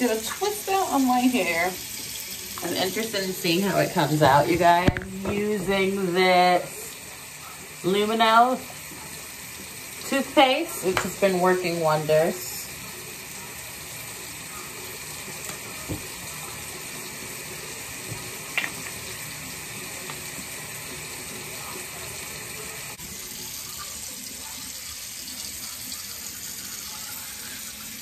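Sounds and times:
tap running into a sink: 4.0 - 5.8, 10.8 - 11.2, 15.4 - 16.6, 18.0 - 19.3.

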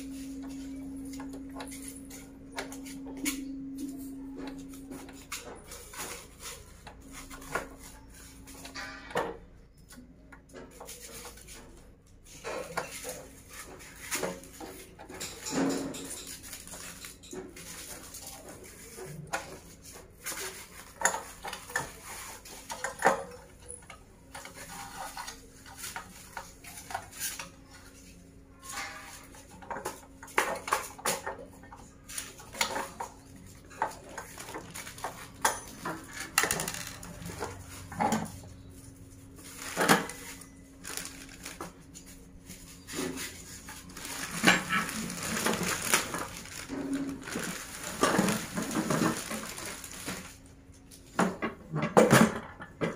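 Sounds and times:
plastic packaging rustling: 12.6 - 31.3, 32.0 - 51.2.

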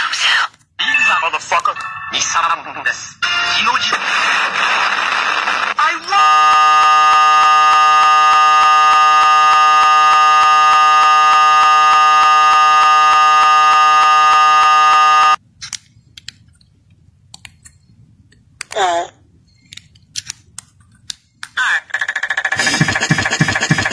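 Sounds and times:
loud looping buzz: 4.2 - 15.4, 22.6 - 23.9.

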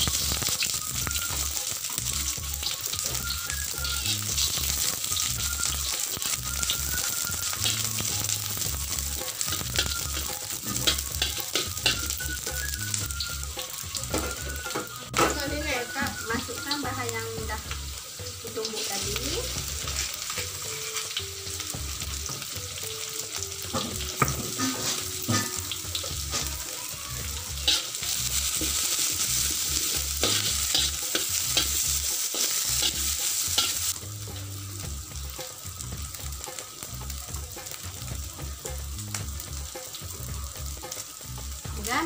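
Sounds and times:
food sizzling in oil: 0.0 - 42.0
metal spatula scraping a pan: 3.8 - 15.4, 18.6 - 21.2, 23.7 - 26.6, 27.3 - 34.5.

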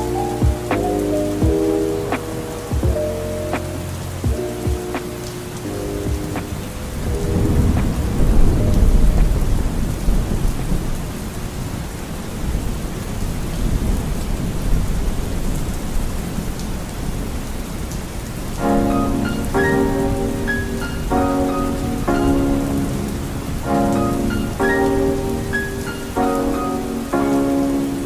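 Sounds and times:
soft music: 0.0 - 10.4, 18.6 - 28.0
steady rain: 0.0 - 28.0
low roll of thunder: 6.1 - 11.4.

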